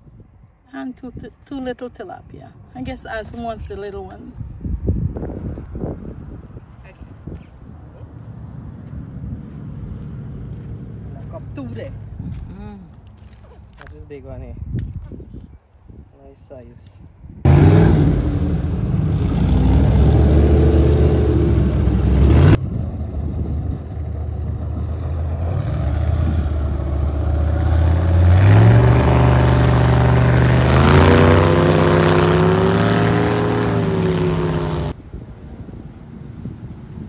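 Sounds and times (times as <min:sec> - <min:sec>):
loud engine revving: 0:17.5 - 0:22.6, 0:24.5 - 0:35.0.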